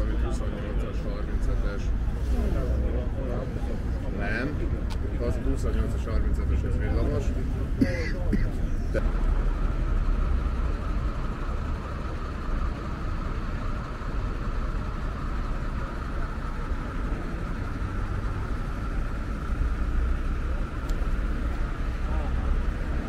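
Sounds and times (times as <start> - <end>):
steady high-pitched hum: 0.0 - 23.0
traffic rumble: 0.0 - 23.0.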